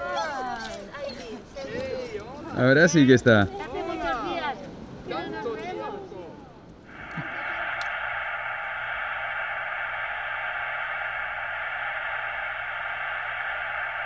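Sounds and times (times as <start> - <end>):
faint low hum: 6.9 - 14.0
radio static hiss: 6.9 - 14.0.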